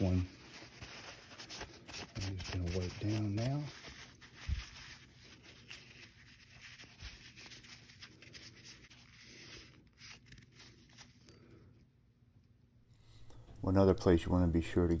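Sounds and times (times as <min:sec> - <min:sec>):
paper towel rustling and rubbing: 0:00.0 - 0:11.2.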